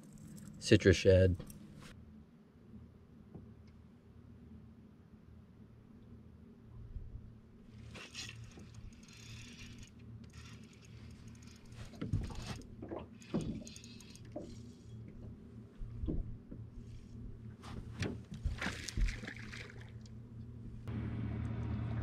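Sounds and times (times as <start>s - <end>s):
steady low hum: 4.4s - 22.0s
fishing reel clicks and rattles: 8.0s - 14.8s.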